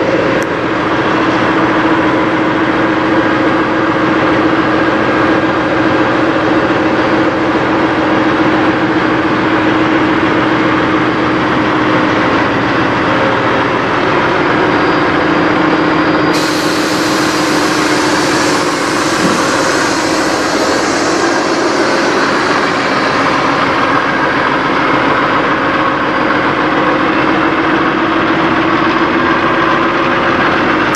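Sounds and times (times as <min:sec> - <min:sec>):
diesel engine idling: 0:00.0 - 0:30.5
constant hum: 0:16.3 - 0:26.6.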